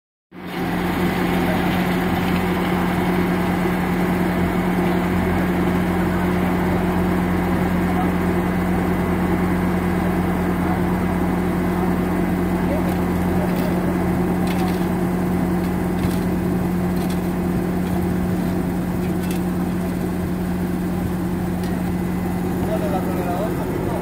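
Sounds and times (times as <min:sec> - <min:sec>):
skid-steer loader engine humming: 0:00.3 - 0:24.0.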